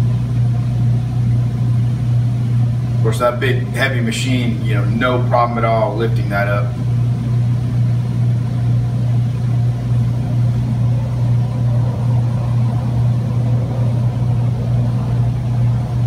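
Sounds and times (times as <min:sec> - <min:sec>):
truck diesel engine humming: 0:02.3 - 0:16.0.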